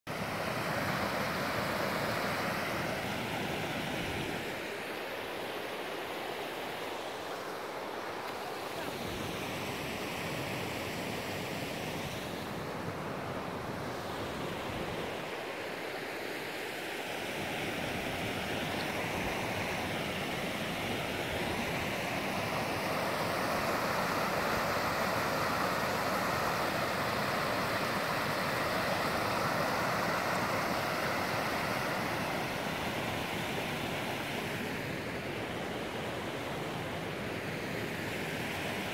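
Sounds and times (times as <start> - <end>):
stream rushing over rocks: 18.4 - 34.0.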